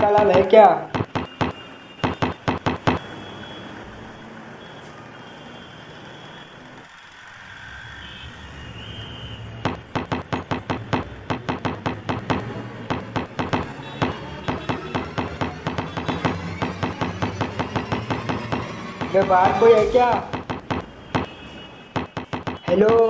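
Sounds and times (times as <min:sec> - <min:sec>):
palms banging on door: 0:00.0 - 0:03.0, 0:09.7 - 0:21.3, 0:22.0 - 0:23.0.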